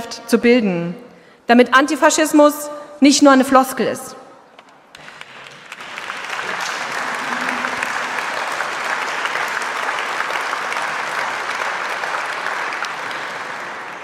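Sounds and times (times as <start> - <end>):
audience applauding: 4.9 - 14.0.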